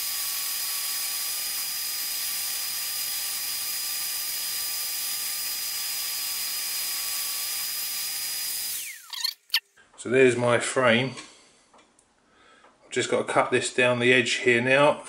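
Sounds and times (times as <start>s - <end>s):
scroll saw cutting plywood: 0.0s - 9.6s.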